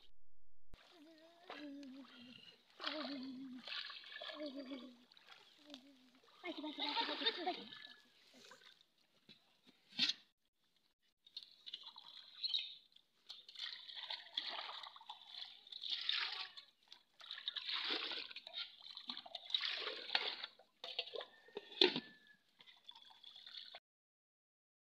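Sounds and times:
water sloshing and dripping: 0:00.8 - 0:23.8
water poured into metal pot: 0:11.3 - 0:23.8.

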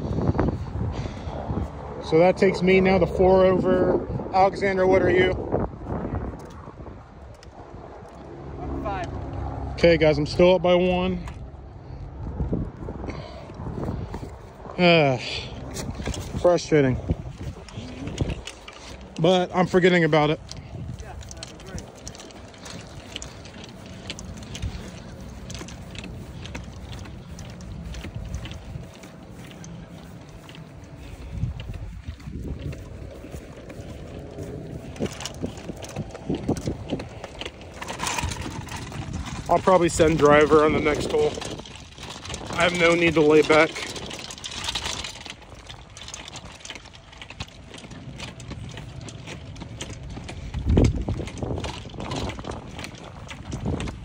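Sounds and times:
wind rumble on microphone: 0:00.0 - 0:54.0
footsteps on frosty grass: 0:13.1 - 0:54.0
push cart rolling: 0:13.1 - 0:54.0
golf bag clattering: 0:13.2 - 0:54.0.

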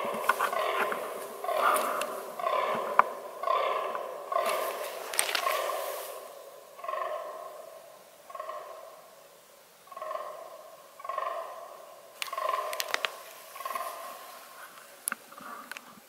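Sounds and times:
deer groaning belching calls: 0:00.0 - 0:09.0, 0:09.9 - 0:16.0
sharp clicks: 0:12.2 - 0:13.2.

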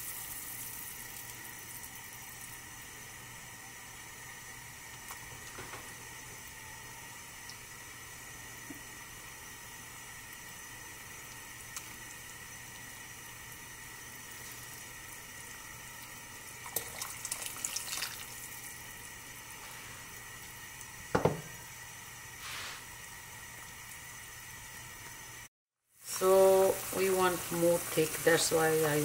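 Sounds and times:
soup simmering with hiss: 0:00.0 - 0:29.0
knock against pot: 0:21.1 - 0:21.6.

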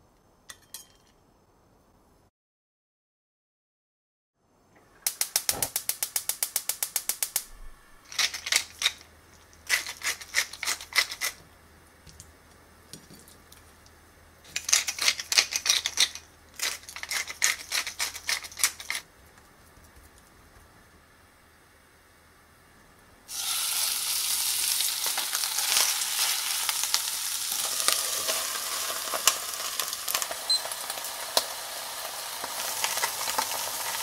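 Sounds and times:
gas hob igniter clicking: 0:05.0 - 0:07.5
pepper mill grinding: 0:05.1 - 0:11.4, 0:14.4 - 0:19.1, 0:23.3 - 0:34.0.

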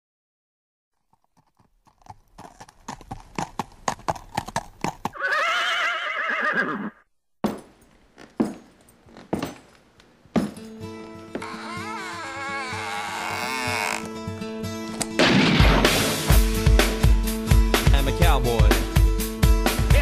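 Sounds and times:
horse hooves clip-clopping: 0:01.0 - 0:05.2, 0:07.4 - 0:15.1
horse whinnying: 0:05.1 - 0:07.1, 0:11.4 - 0:14.2.

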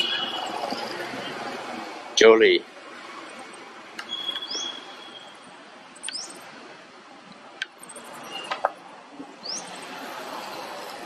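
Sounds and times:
monkeys squeaking: 0:04.0 - 0:05.4.

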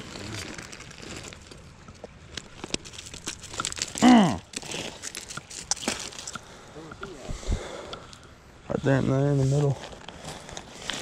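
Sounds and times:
person exclaiming: 0:04.0 - 0:04.4.

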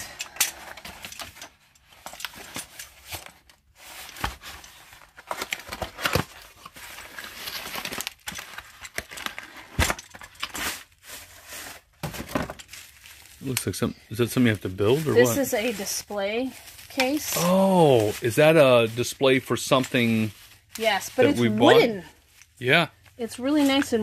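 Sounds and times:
plastic packaging crinkling: 0:02.0 - 0:13.7, 0:14.4 - 0:21.3.

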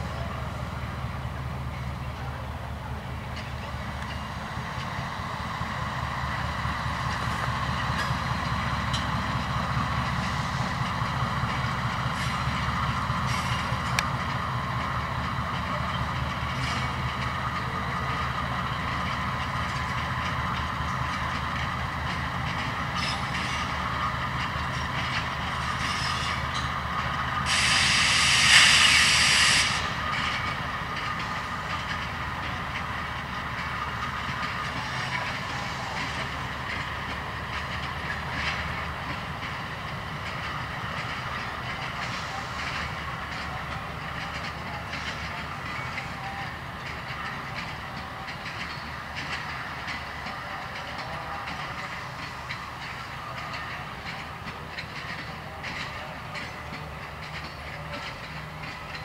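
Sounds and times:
diesel locomotive engine rumble: 0:00.0 - 0:59.0
loud hiss burst: 0:27.4 - 0:29.9.

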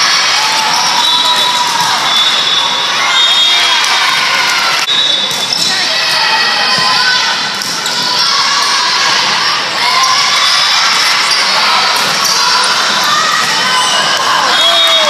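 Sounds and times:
voices and shouts: 0:00.0 - 0:15.0
sneakers squeaking on court: 0:05.0 - 0:05.9.

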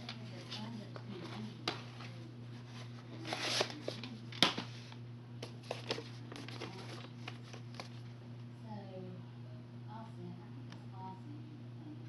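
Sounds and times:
tape cases rustling and clicking: 0:00.0 - 0:04.7, 0:05.4 - 0:08.0.

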